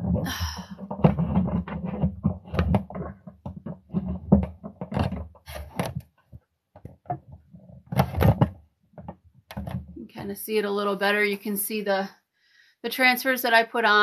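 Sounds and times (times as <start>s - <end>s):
phone handling knocks and rubbing: 0.0s - 10.0s.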